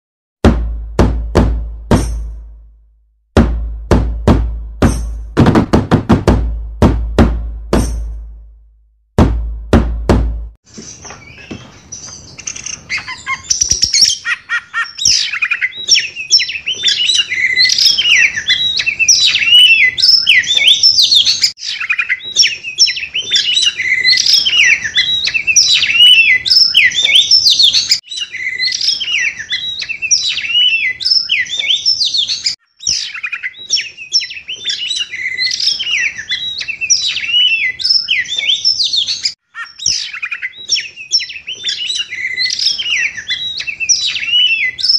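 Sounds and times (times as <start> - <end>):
bird singing: 10.7 - 44.9.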